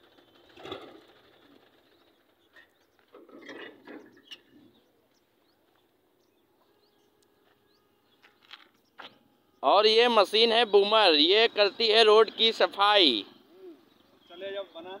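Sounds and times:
faint bird chirps: 1.3 - 9.8, 13.2 - 15.0.

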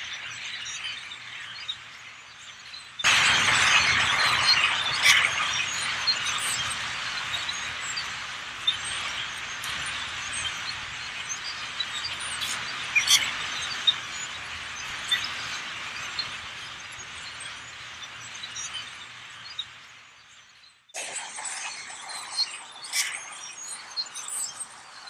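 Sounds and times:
huge flock of birds chattering: 0.1 - 19.7, 21.0 - 25.0
sharper bird calls: 21.0 - 25.0.

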